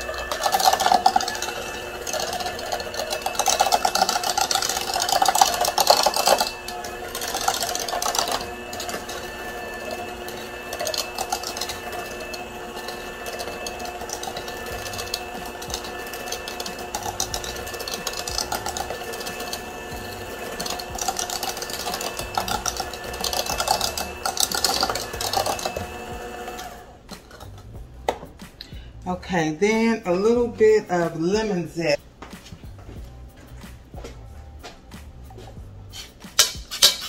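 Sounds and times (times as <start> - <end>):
electric hand mixer running: 0.0 - 27.9
beaters rattling against bowl: 0.0 - 28.2.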